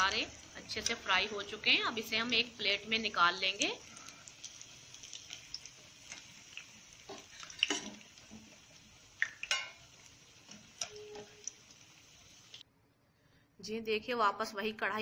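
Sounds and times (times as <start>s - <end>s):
potatoes sizzling in hot oil: 0.0s - 12.6s
metal skimmer clinking on pan: 9.5s - 9.8s.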